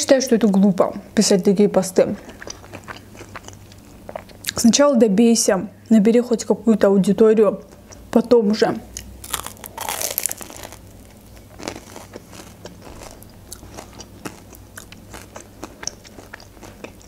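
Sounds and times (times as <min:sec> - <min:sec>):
chewing with crunches: 0:02.1 - 0:04.6, 0:09.0 - 0:17.0
person biting crispy food: 0:09.2 - 0:15.4.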